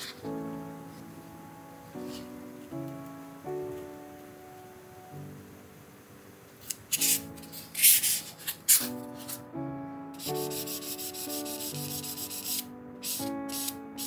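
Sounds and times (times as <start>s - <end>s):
sanding pad scratching: 7.0s - 9.4s, 10.2s - 13.8s.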